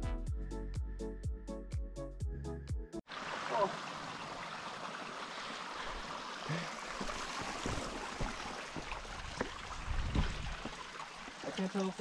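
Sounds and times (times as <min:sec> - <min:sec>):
rushing water: 0:03.1 - 0:12.0.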